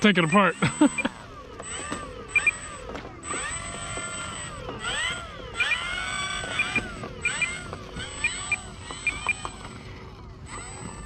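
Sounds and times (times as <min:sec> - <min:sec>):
thin high-pitched drone: 0:01.8 - 0:02.7
high chirps: 0:02.3 - 0:02.8, 0:05.6 - 0:09.4.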